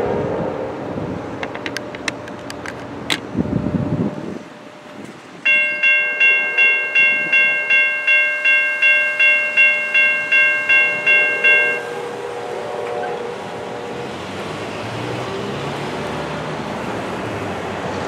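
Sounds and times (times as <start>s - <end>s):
crossing warning bell ringing: 5.4s - 14.8s
car passing over crossing: 8.5s - 18.0s.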